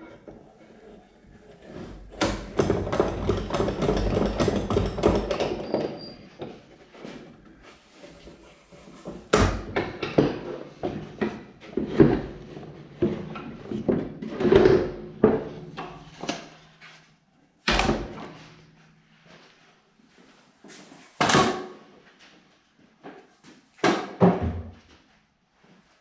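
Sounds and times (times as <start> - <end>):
wooden knocks and clatter: 1.8 - 7.3, 8.2 - 16.6.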